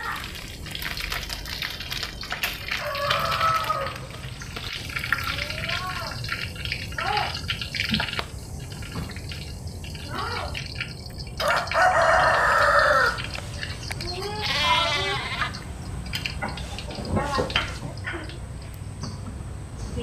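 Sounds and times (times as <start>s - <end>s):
hot oil sizzling: 0.0s - 20.0s
rising and falling animal calls: 2.6s - 4.4s, 11.5s - 18.4s
rooster crowing: 2.6s - 4.4s, 11.4s - 15.6s.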